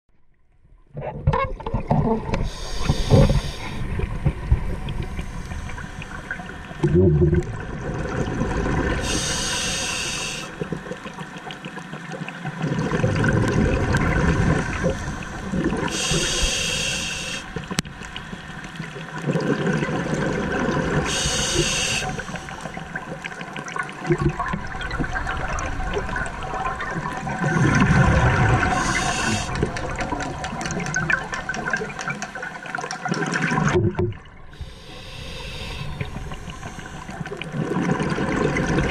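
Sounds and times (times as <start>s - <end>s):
exhaled bubbles: 0.9s - 38.9s
regulator hissing inhale: 2.4s - 4.0s, 9.0s - 10.6s, 14.8s - 18.5s, 21.1s - 22.8s, 28.7s - 29.7s, 34.5s - 37.4s.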